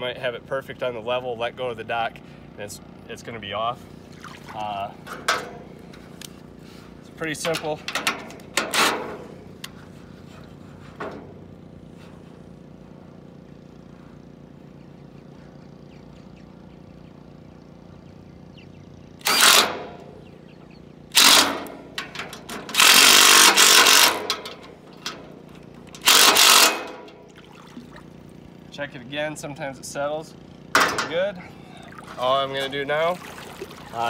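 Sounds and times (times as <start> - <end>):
impact driver running: 19.2 - 20.0, 21.1 - 24.6, 25.8 - 27.1.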